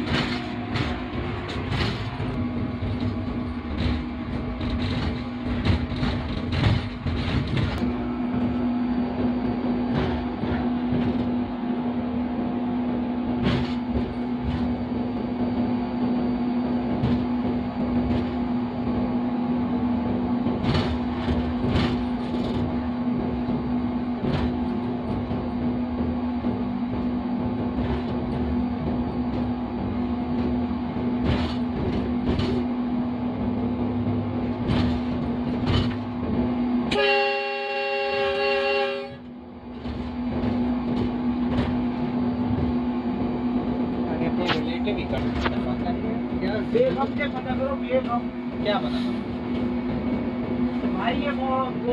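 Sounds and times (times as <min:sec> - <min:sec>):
locomotive horn: 0:00.0 - 0:02.4, 0:36.9 - 0:39.3
wheels clicking over rail joints: 0:00.0 - 0:08.6, 0:20.0 - 0:51.9
locomotive hum: 0:00.0 - 0:51.9.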